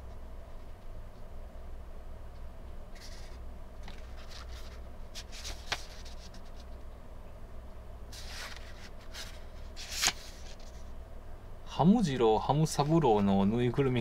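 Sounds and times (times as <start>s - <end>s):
low steady hum: 0.0s - 14.0s
page-turn swish: 3.0s - 6.7s, 8.1s - 10.8s
paper rustling: 3.0s - 6.8s, 8.1s - 10.9s.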